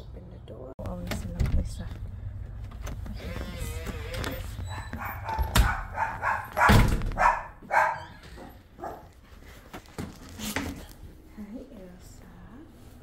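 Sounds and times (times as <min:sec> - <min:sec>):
dog yips: 0:04.6 - 0:09.0
dog barking: 0:04.7 - 0:09.2.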